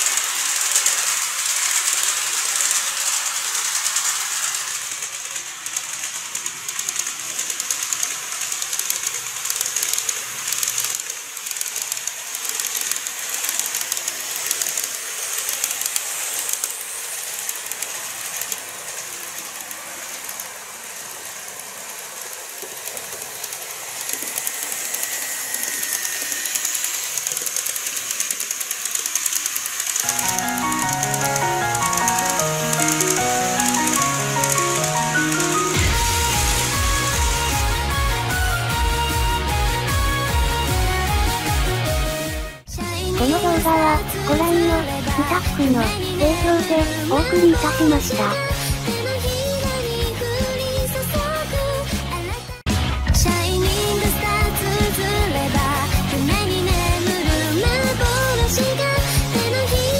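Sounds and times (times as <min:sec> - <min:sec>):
clicking from rail joints: 0:00.0 - 0:25.1
model train wheels and motors hissing: 0:00.0 - 0:52.6, 0:53.4 - 0:59.9.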